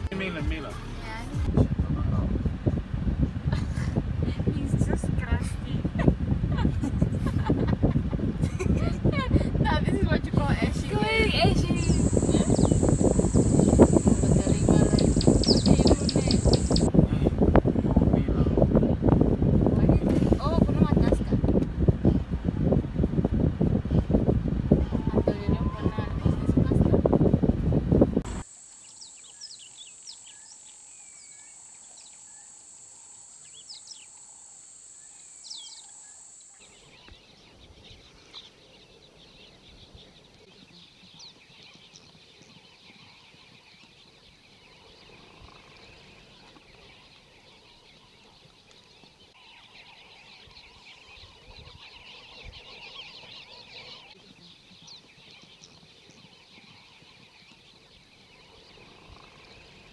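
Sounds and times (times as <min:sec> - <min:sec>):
low wind rumble: 0:01.4 - 0:28.4
high whine: 0:10.4 - 0:16.9, 0:28.3 - 0:36.8
small birds chirping: 0:10.4 - 0:16.9, 0:28.3 - 0:59.9.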